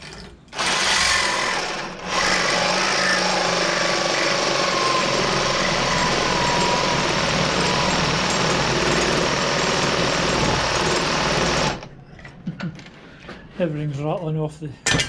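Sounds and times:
reciprocating saw cutting metal: 0:00.6 - 0:11.8.

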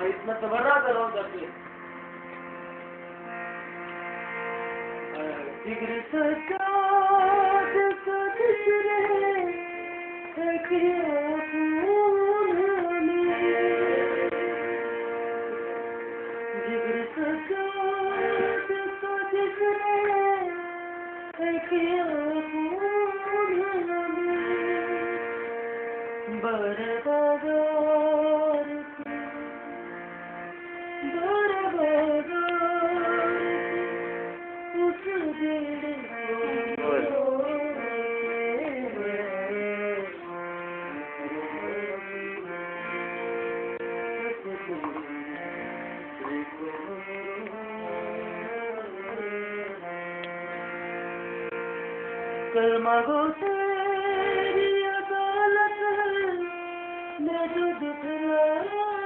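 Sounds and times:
musical drone: 0:06.5 - 0:20.9.

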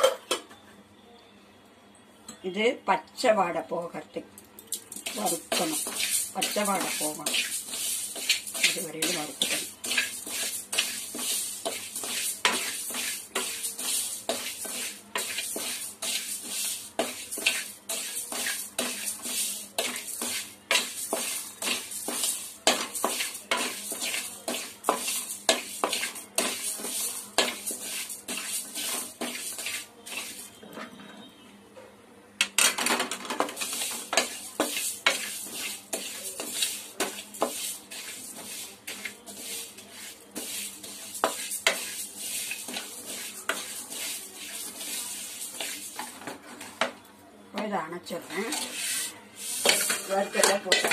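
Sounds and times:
spoon scraping rice in pan: 0:04.7 - 0:30.9, 0:32.7 - 0:47.0, 0:48.2 - 0:50.9.

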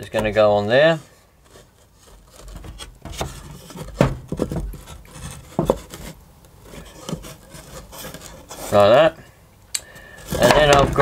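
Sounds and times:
wooden panels knocking and rubbing: 0:02.2 - 0:08.7, 0:10.2 - 0:11.0.

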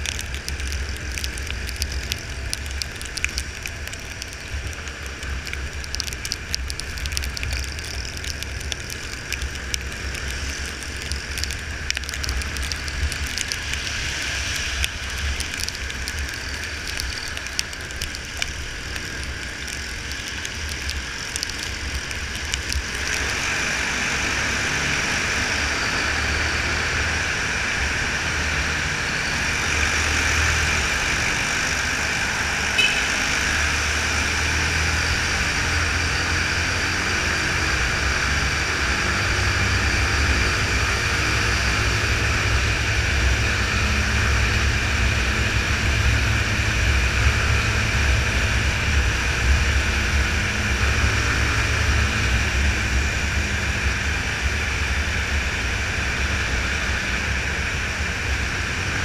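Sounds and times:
sharp clicks: 0:00.0 - 0:23.3
traffic echoing in tunnel: 0:00.0 - 0:59.0.

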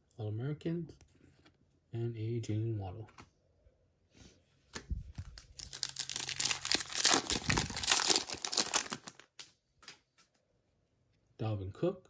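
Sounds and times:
foil wrapper tearing and crinkling: 0:05.3 - 0:09.5.

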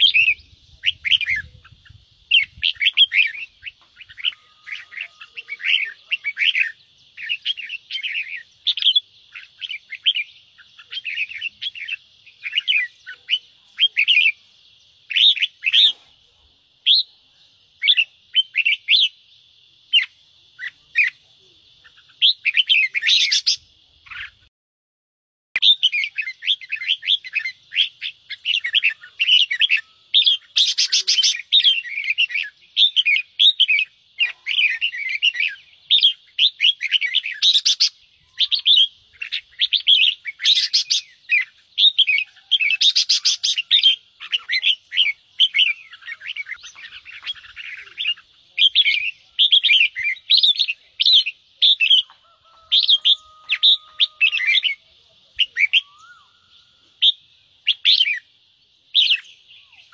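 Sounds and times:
birds harsh chattering calls: 0:00.0 - 0:16.2, 0:20.0 - 0:24.5, 0:25.6 - 0:58.3.

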